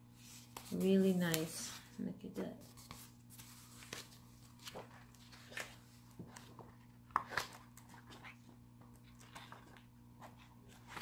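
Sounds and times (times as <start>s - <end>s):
book pages rustling: 0.2s - 1.9s, 2.6s - 11.0s.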